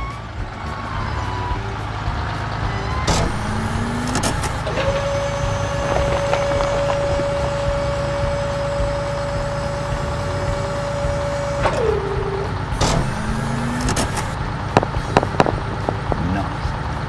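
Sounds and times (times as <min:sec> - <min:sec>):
short rising tone: 0:00.0 - 0:16.2
cartoon truck engine running: 0:00.0 - 0:17.0
high steady whine: 0:00.0 - 0:17.0
sharp clicks: 0:03.1 - 0:05.0, 0:12.8 - 0:16.0.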